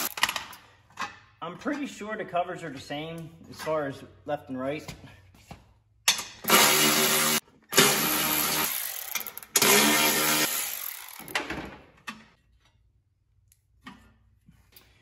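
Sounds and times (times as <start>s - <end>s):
electric ratchet whirring: 0.0s - 0.2s, 6.4s - 11.4s.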